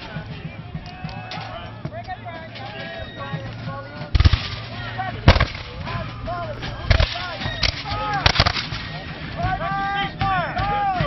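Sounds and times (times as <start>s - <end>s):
black powder gunshots: 4.1s - 6.1s, 6.9s - 9.0s.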